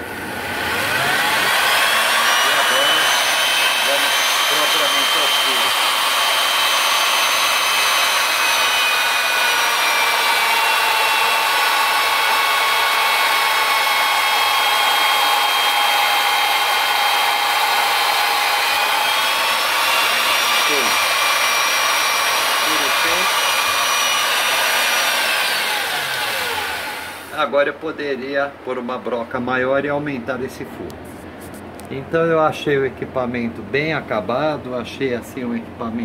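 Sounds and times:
electric drill motor whine: 0:00.0 - 0:27.4.

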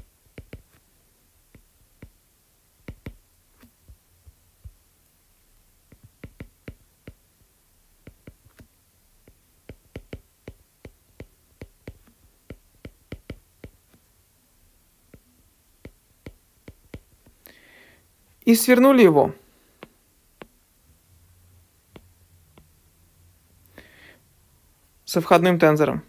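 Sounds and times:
stylus tapping on tablet: 0:00.0 - 0:00.8, 0:01.5 - 0:02.2, 0:02.8 - 0:04.8, 0:05.8 - 0:07.4, 0:08.0 - 0:14.1, 0:15.1 - 0:17.5, 0:19.7 - 0:20.7, 0:21.8 - 0:22.8.

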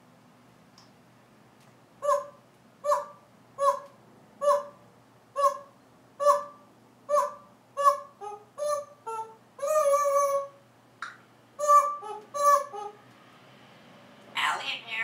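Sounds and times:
parrot calling: 0:02.0 - 0:10.6, 0:11.6 - 0:13.0.

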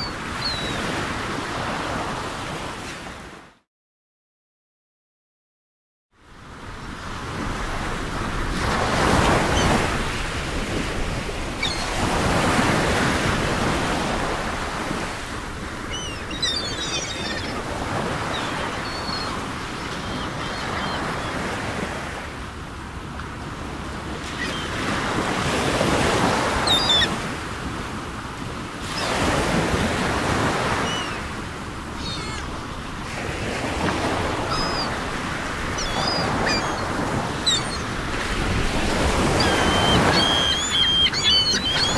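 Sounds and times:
ocean waves washing in: 0:06.6 - 0:41.9
high chirps: 0:39.4 - 0:41.9.

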